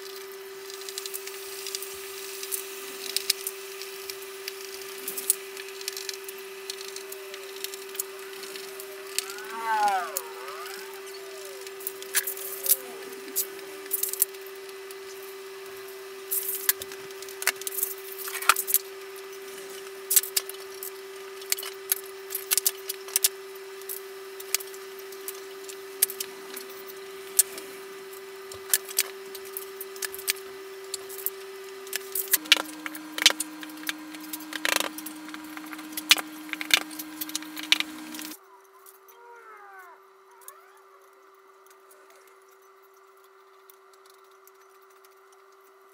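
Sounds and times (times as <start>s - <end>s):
steady low tone: 6.8s - 14.7s.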